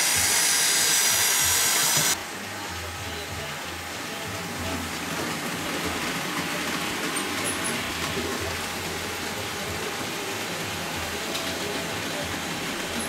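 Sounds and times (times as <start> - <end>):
model train motor whirring: 0.0 - 2.2.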